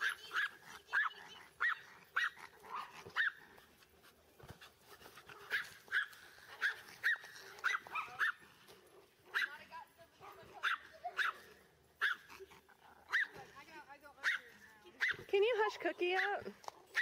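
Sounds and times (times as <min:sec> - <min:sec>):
small dog yapping: 0:00.0 - 0:03.4, 0:05.5 - 0:08.4, 0:10.6 - 0:13.4.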